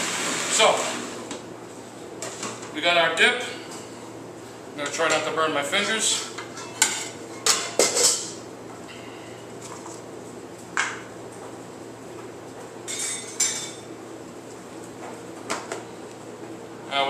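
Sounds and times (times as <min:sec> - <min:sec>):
kitchenware clinking on steel counter: 0:06.3 - 0:08.4, 0:12.9 - 0:13.8.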